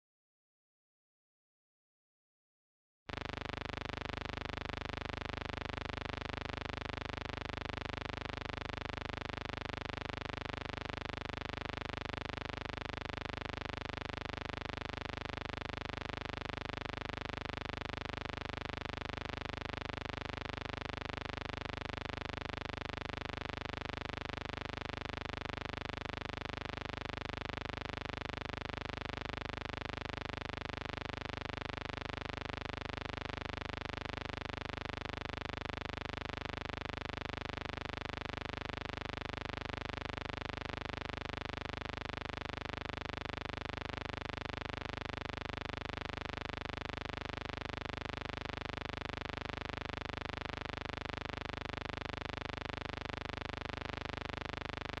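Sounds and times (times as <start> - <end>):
faint hum: 3.1 - 21.7.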